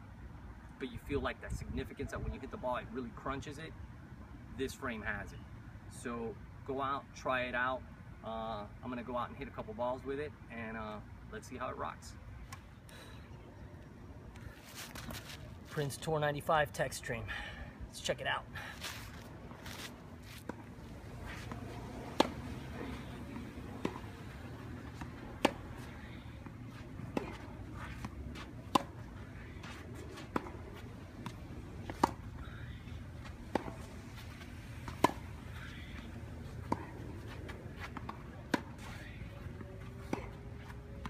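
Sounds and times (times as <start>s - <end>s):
tennis ball hitting racket: 19.6s - 41.0s.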